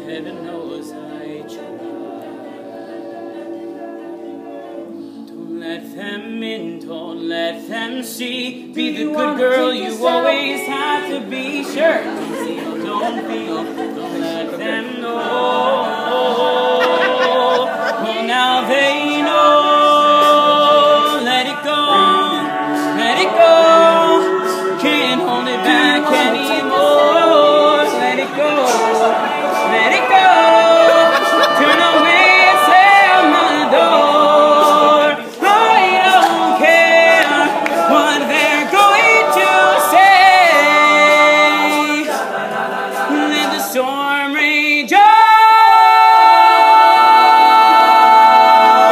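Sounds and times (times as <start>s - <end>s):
male backing harmonies: 0.0s - 48.9s
male lead voice singing: 5.7s - 48.9s.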